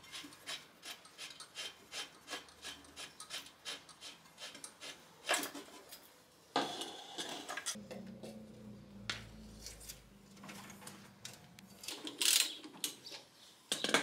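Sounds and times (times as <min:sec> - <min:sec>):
wrench rasping on metal: 0:00.0 - 0:05.0.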